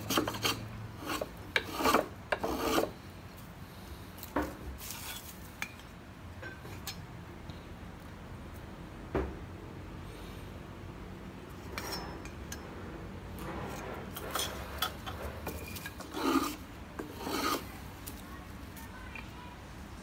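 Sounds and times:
hand tool scraping wood: 0.0 - 3.0, 13.4 - 18.2.

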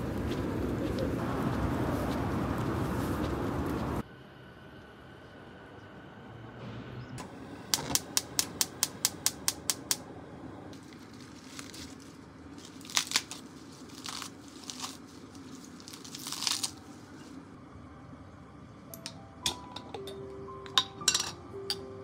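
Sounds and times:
lettuce leaves rustling: 10.8 - 17.6.

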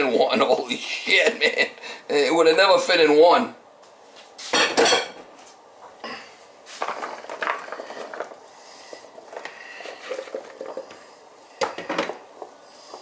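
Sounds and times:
pans and utensils clattering: 4.5 - 5.2.

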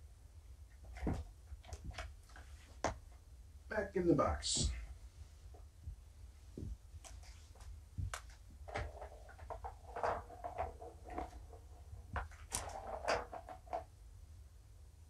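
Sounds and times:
rustling: 4.6 - 13.9.

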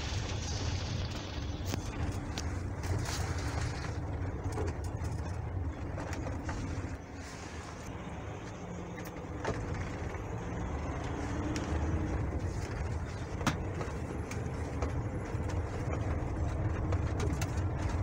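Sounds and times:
bus engine and road rumble: 0.0 - 18.0
small clicks and rattles: 1.6 - 7.0, 8.9 - 18.0.

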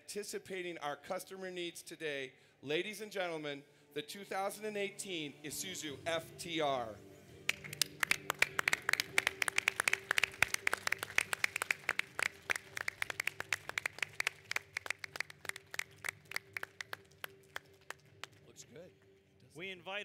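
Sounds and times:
small crowd applauding: 7.5 - 18.8.

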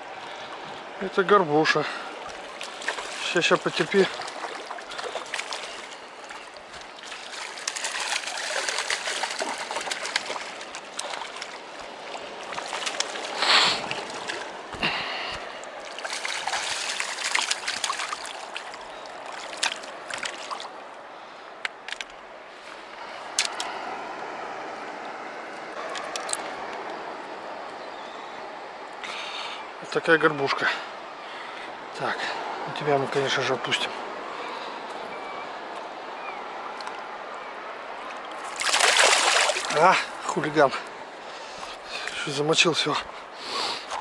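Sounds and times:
river water running over pebbles: 0.0 - 44.0
fish splashing in water: 2.2 - 14.9, 15.6 - 20.8, 38.1 - 39.9.

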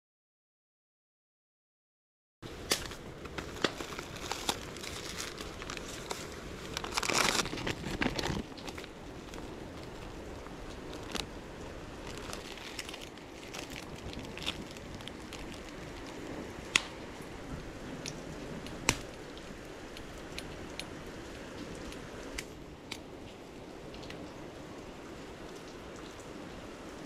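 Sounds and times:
plastic packaging crinkling: 2.5 - 17.0
rustling: 2.5 - 17.0.

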